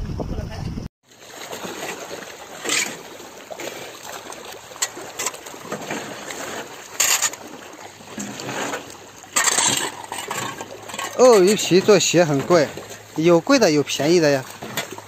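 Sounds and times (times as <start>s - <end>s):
crocodiles splashing in water: 1.1s - 15.0s
shovel scraping wet concrete: 2.6s - 3.0s, 4.8s - 13.0s.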